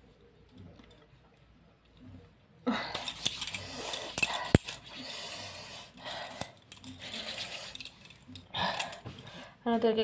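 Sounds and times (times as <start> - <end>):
bangles clinking: 2.9 - 9.3.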